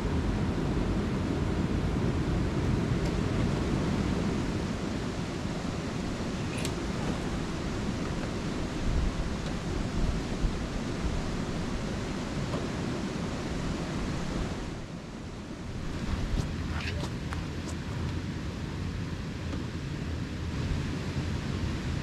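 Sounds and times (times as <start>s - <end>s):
creek rushing: 1.9s - 19.0s.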